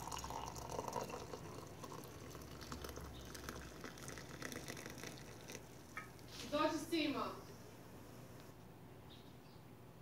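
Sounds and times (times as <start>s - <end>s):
hot water pouring into a mug: 0.0s - 6.2s.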